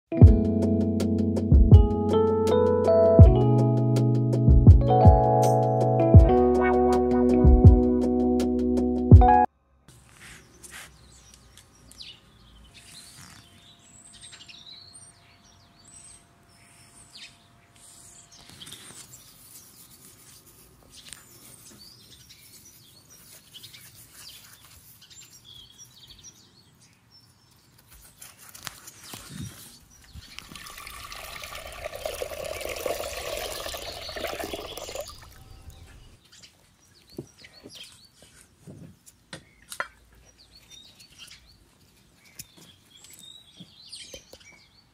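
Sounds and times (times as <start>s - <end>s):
hands working pulp in water: 30.3s - 35.6s
liquid splashing: 30.3s - 35.9s.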